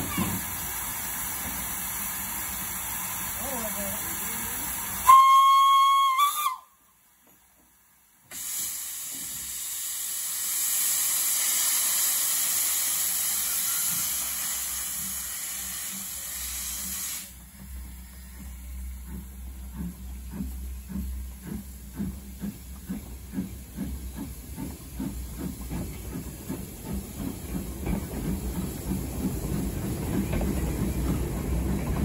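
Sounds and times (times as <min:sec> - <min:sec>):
loud steam hiss: 0:00.0 - 0:06.6, 0:08.2 - 0:18.9
steam whistle blast: 0:05.0 - 0:06.7.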